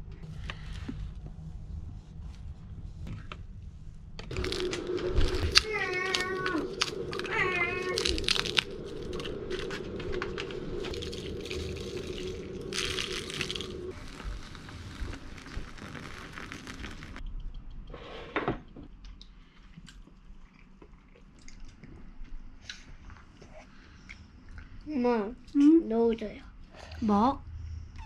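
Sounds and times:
water pouring into bowl: 0:04.3 - 0:17.2.

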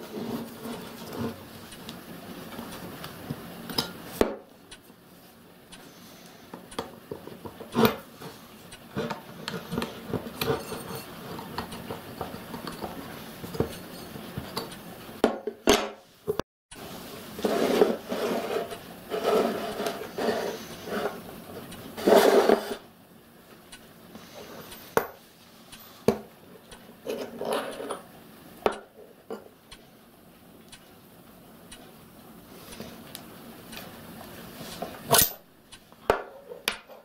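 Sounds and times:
steel parts clinking and scraping: 0:09.0 - 0:14.8, 0:27.0 - 0:28.0, 0:34.7 - 0:35.4.

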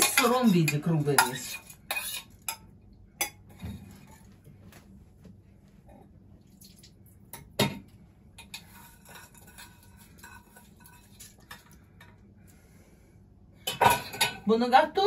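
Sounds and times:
spoon and bowls clinking: 0:00.0 - 0:04.2.

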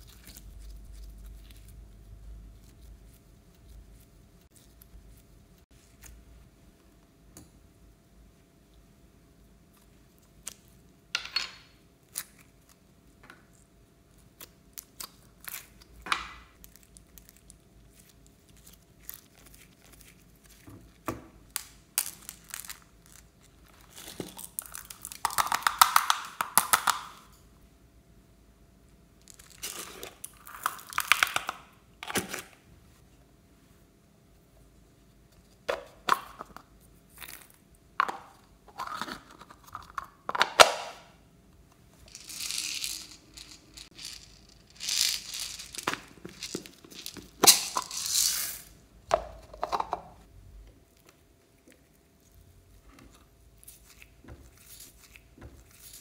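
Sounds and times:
plastic crinkling: 0:42.1 - 0:48.7.

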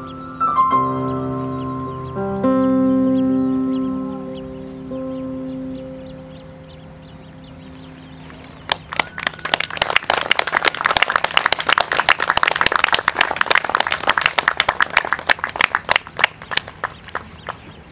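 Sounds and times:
piano chord: 0:00.0 - 0:08.4
audience applause: 0:08.7 - 0:17.7.

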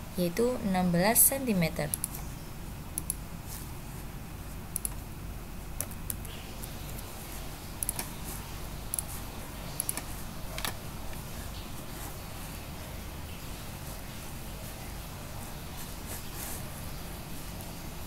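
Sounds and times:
low steady hum: 0:00.0 - 0:18.0
mouse clicks: 0:04.8 - 0:05.0, 0:07.8 - 0:08.1.

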